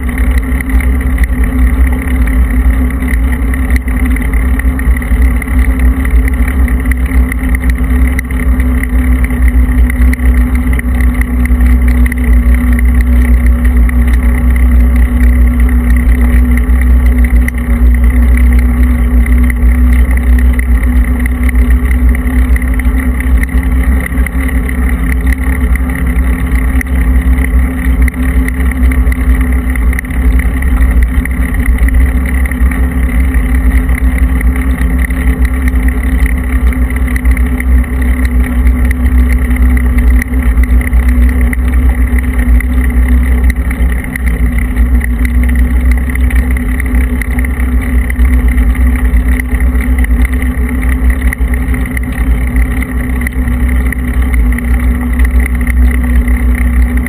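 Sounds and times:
tyres rolling on rough asphalt: 0:00.0 - 0:57.0.

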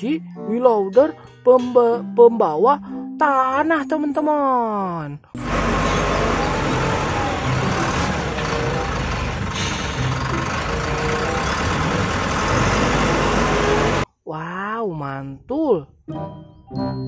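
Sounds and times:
diesel engine running: 0:05.4 - 0:14.0.

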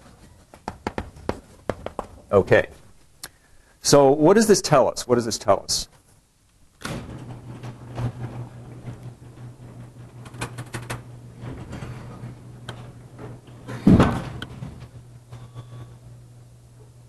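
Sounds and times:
low hum: 0:06.9 - 0:17.0
heavy thump: 0:13.8 - 0:14.4.

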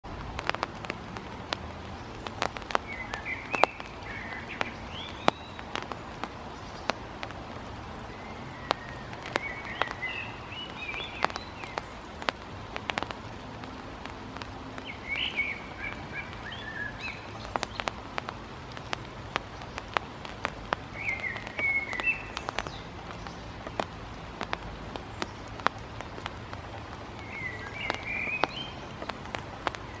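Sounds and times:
bird chirping: 0:14.8 - 0:17.9, 0:20.9 - 0:23.6, 0:27.2 - 0:30.0.

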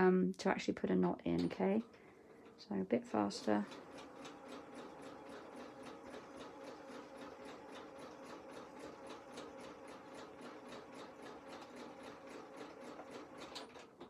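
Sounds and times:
sewing machine motor hum: 0:01.2 - 0:14.0
sewing needle ticking: 0:03.5 - 0:13.8.

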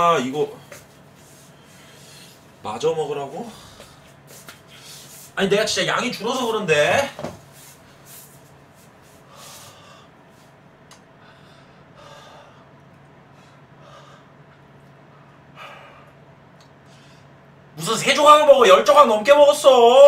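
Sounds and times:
man breathing hard: 0:00.7 - 0:02.5, 0:03.4 - 0:05.3, 0:09.0 - 0:10.5, 0:11.2 - 0:16.2.

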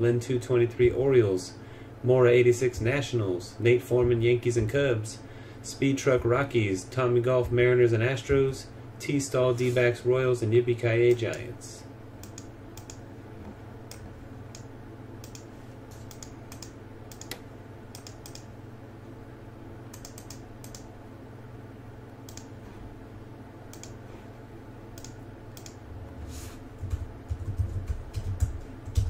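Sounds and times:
steady low hum: 0:00.0 - 0:29.0
computer keyboard typing: 0:12.2 - 0:13.0, 0:14.6 - 0:18.5, 0:19.9 - 0:20.9, 0:25.0 - 0:25.8, 0:26.8 - 0:29.0
mouse clicks: 0:12.2 - 0:13.0, 0:13.9 - 0:18.5, 0:22.3 - 0:22.5, 0:23.7 - 0:24.0, 0:25.0 - 0:25.8.

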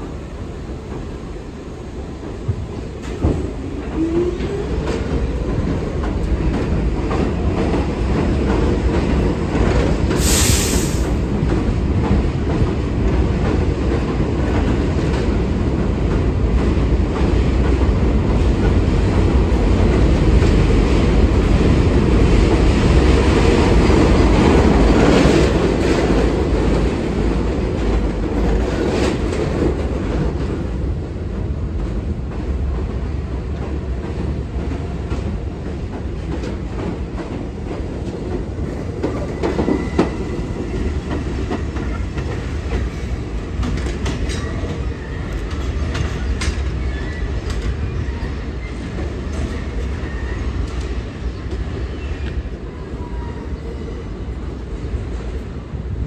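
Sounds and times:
subway train wheels clattering: 0:00.0 - 0:56.0
air hiss: 0:10.1 - 0:11.2.

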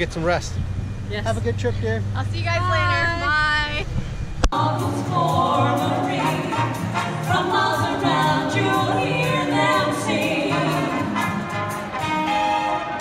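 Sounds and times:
women singing in harmony: 0:04.6 - 0:11.5
musical accompaniment with bass: 0:04.6 - 0:13.0.

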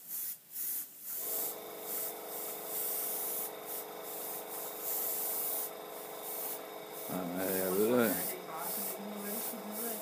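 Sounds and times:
air hissing: 0:00.0 - 0:10.0
compressor humming: 0:01.2 - 0:10.0.

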